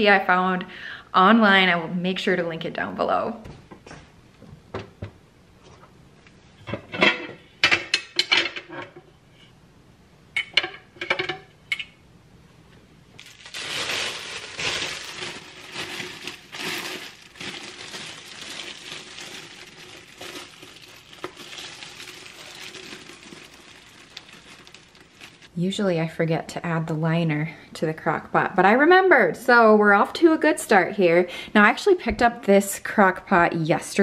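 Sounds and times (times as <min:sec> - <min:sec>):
plastic liner crinkling: 0:13.2 - 0:25.5.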